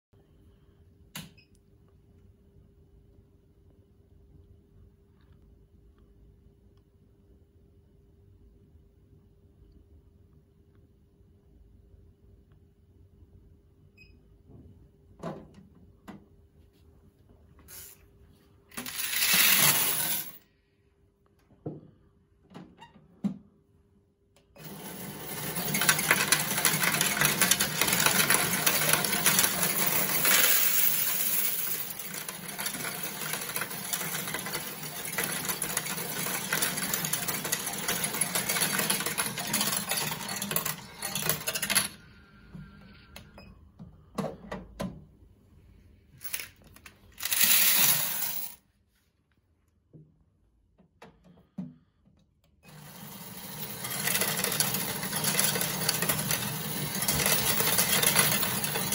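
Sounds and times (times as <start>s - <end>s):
coin sorter rattling and clinking: 18.7s - 20.4s, 24.6s - 42.1s, 46.2s - 48.6s, 52.7s - 58.9s
coins clattering into hopper: 18.7s - 20.4s, 24.6s - 42.0s, 46.2s - 48.6s, 52.7s - 58.9s.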